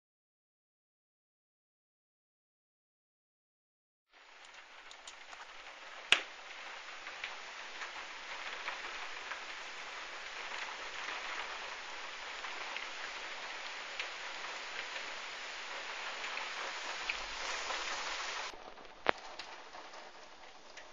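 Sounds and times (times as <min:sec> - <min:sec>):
heavy rain falling: 0:04.2 - 0:20.9.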